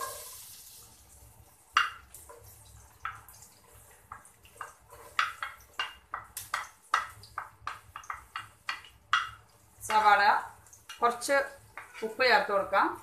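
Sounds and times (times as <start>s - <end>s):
wooden spatula scraping a plate: 3.1s - 6.3s, 11.7s - 12.3s.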